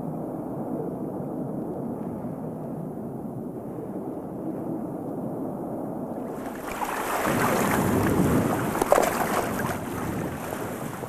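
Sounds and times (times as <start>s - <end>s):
muffled underwater rumble: 6.1s - 11.0s
water splashing and lapping: 6.2s - 11.0s.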